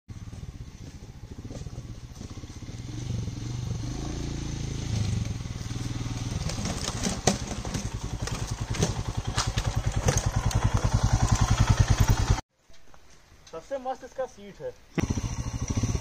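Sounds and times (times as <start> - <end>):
motorcycle engine at low revs: 0.1 - 12.4, 15.0 - 16.0.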